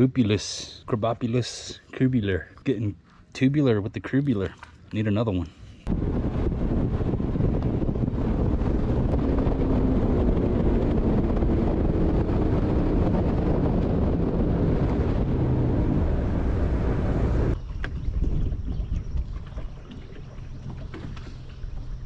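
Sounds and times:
outboard engine drone: 0.0s - 22.0s
wind buffeting microphone: 5.8s - 22.0s.

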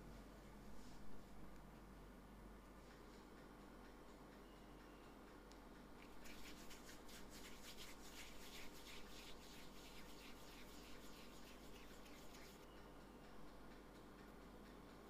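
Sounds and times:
palms rubbing dough: 6.0s - 12.6s.

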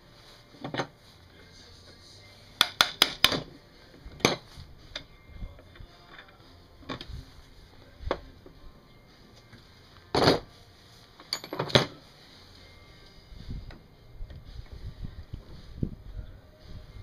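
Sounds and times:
metallic clinks and knocks: 11.2s - 12.0s.

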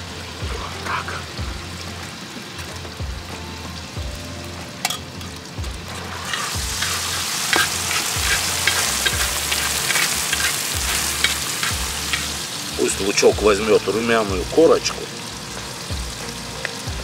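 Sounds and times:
onions frying in a pan: 0.0s - 17.0s
spatula scraping a metal pan: 0.4s - 1.4s, 5.9s - 12.4s.

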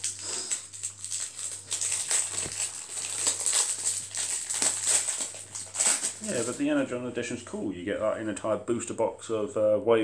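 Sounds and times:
cards rustling: 0.0s - 6.7s
wrappers crinkling: 0.0s - 6.8s.

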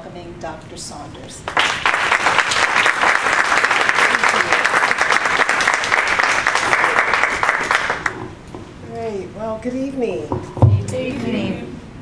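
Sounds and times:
audience clapping: 1.4s - 8.3s.

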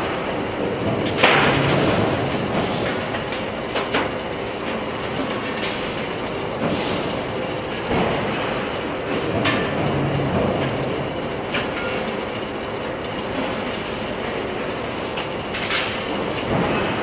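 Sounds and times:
factory machinery running: 0.0s - 17.0s.

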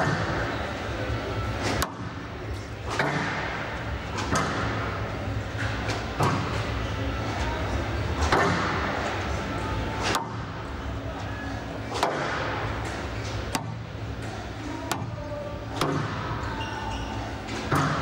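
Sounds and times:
squash ball cracks: 10.0s - 10.5s, 11.9s - 12.6s, 13.5s - 13.8s, 14.9s - 16.3s.

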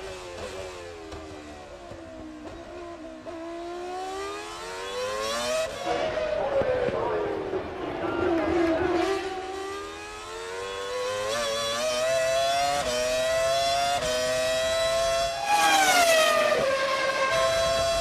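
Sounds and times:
racing car engine revving: 8.3s - 18.0s.

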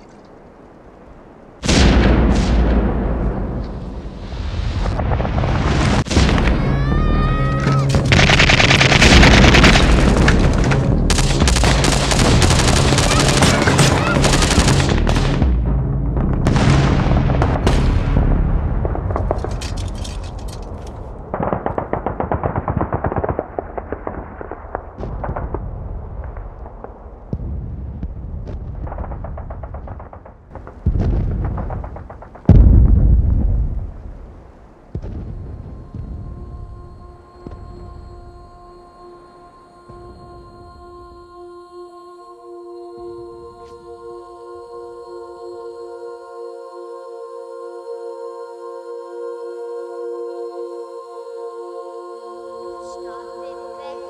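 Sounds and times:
heavy booms: 1.6s - 19.9s, 21.0s - 38.8s
explosions: 1.6s - 38.3s
heavy gunfire: 7.8s - 15.7s, 21.2s - 34.2s.

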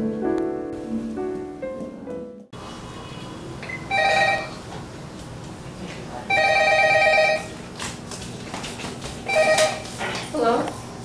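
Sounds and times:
telephone ringing: 3.9s - 4.6s, 6.3s - 7.5s, 9.3s - 9.8s.

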